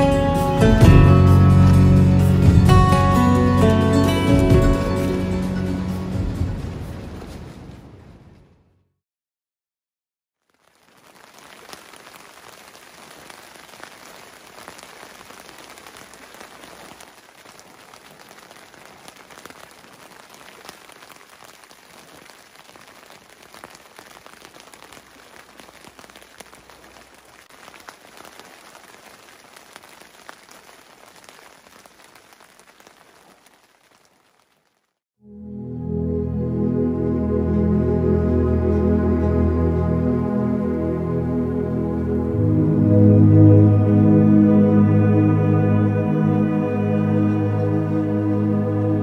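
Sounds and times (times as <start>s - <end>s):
rain drops ticking on a surface: 10.4s - 35.0s.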